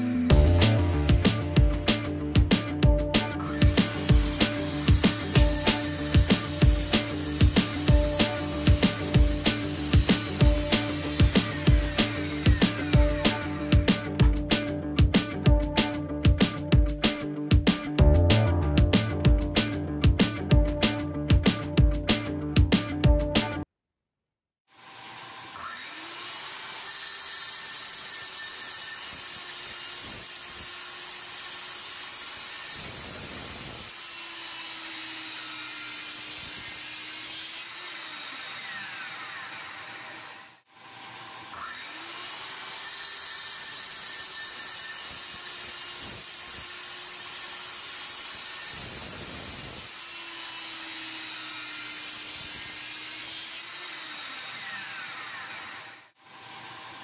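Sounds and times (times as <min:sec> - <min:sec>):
saw cutting board: 0:00.0 - 0:23.6, 0:24.7 - 0:57.0
circular saw spinning: 0:03.2 - 0:14.7, 0:24.8 - 0:57.0
dust suction hiss: 0:03.4 - 0:14.0.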